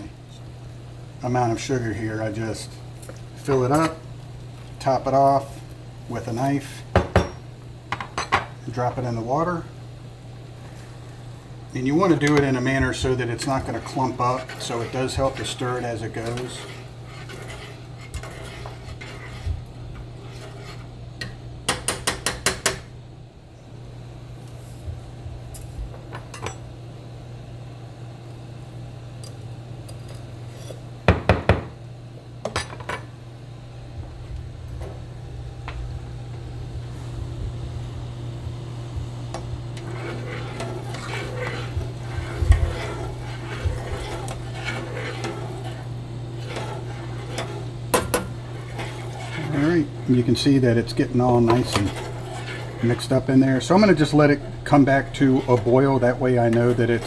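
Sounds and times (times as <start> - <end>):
metal utensil scraping saucepan: 11.9 - 19.6, 20.2 - 20.9, 39.8 - 57.0
low hum: 33.1 - 57.0.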